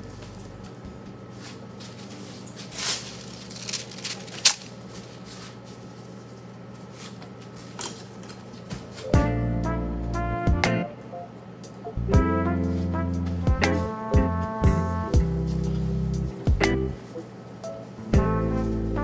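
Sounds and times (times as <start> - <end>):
steady low hum: 0.0 - 19.0
jazzy music with brass: 9.2 - 11.0, 12.0 - 17.2, 18.0 - 19.0.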